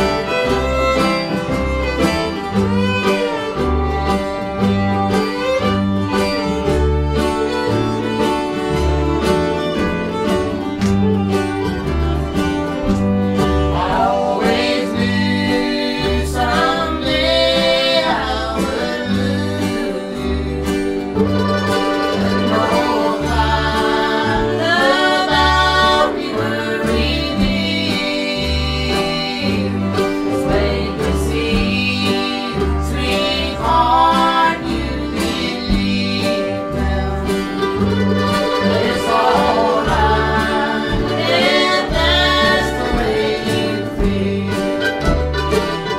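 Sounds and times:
fiddle melody: 0.0s - 45.9s
upright bass line: 0.0s - 45.9s
two people singing: 13.1s - 45.9s.

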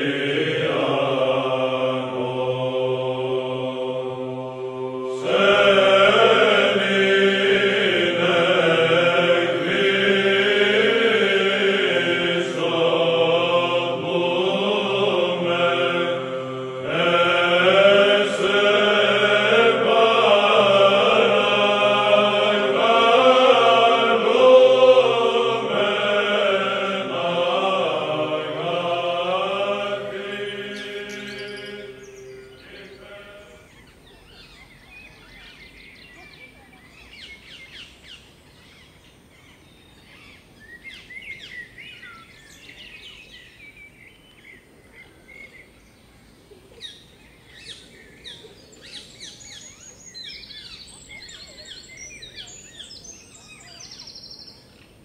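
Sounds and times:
low held drone: 0.0s - 33.7s
voices chanting: 0.0s - 36.7s.

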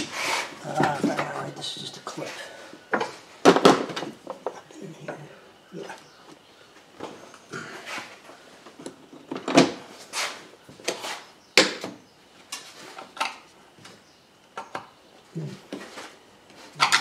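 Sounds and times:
hand tools clicking and clattering: 16.7s - 17.0s.

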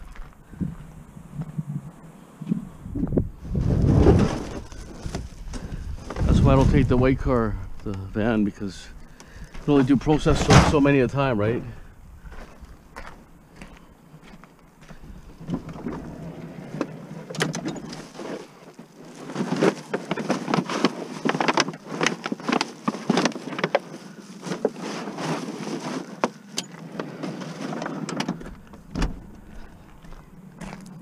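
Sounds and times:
plastic bags crinkling: 18.0s - 26.5s.

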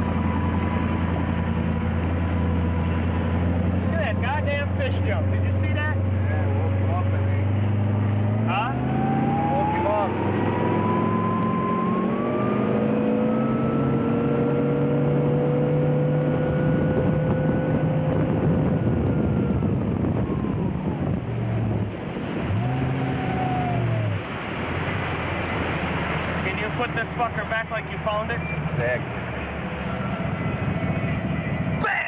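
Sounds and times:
motorboat engine running: 0.0s - 31.8s
water rushing past hull: 0.0s - 32.0s
wind on microphone: 7.7s - 26.3s, 29.6s - 31.8s.

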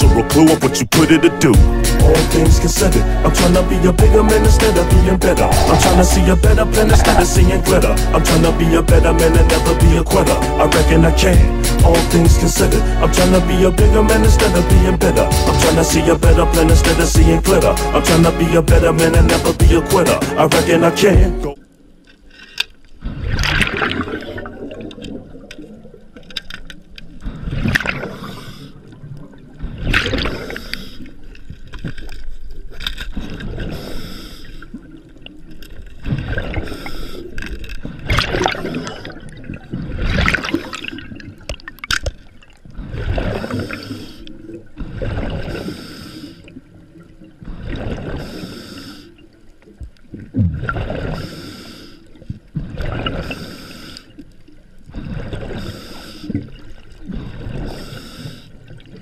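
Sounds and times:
underwater gurgling and rushing water: 4.0s - 9.5s, 21.6s - 59.0s.

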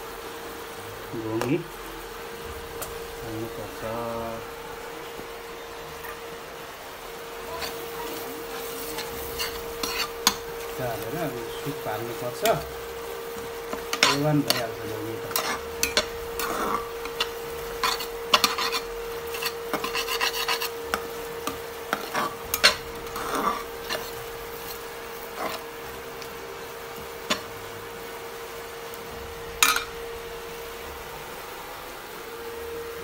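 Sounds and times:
steady hum: 0.0s - 33.0s
metal ladle scraping steel pot: 7.5s - 10.8s, 13.7s - 25.6s.

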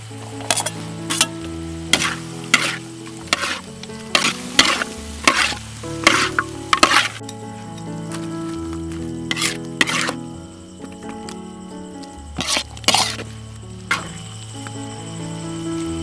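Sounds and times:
food sizzling: 0.0s - 16.0s
soft music: 0.0s - 16.0s
metal spatula scraping a wok: 0.4s - 1.3s, 1.9s - 7.3s, 9.3s - 10.2s, 12.4s - 13.3s, 13.9s - 14.2s.

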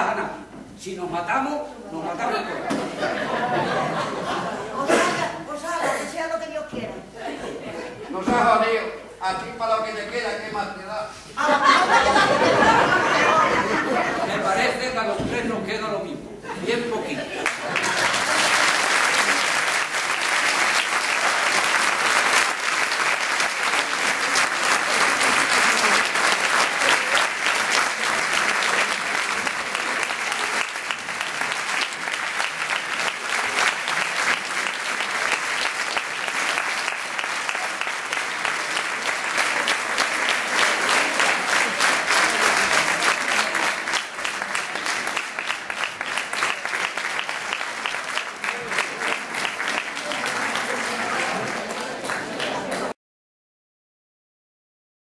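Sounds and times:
audience applauding: 17.4s - 53.0s.

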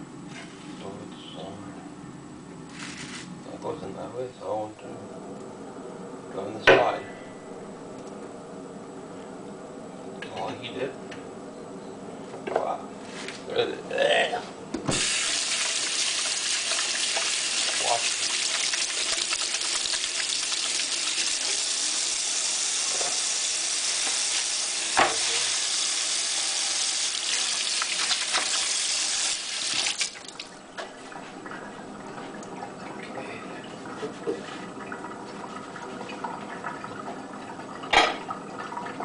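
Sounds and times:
hands rinsing under water: 15.0s - 21.5s
tap running into metal sink: 24.9s - 25.3s.

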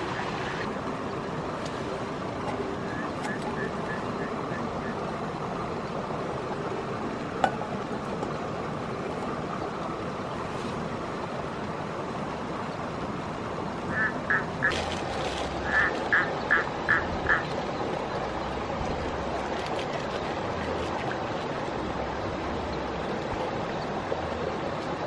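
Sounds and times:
short quacking calls: 15.6s - 17.5s.

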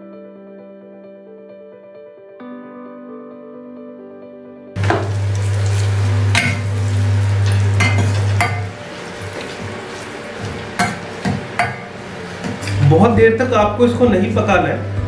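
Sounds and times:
soft background music: 0.0s - 15.0s
leaves sizzling in hot oil: 4.8s - 12.8s.

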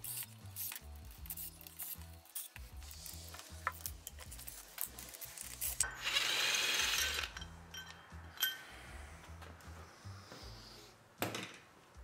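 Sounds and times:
ratchet metal clicks: 0.0s - 2.6s
faint background music: 0.0s - 12.0s
cordless driver spinning: 6.0s - 7.4s.

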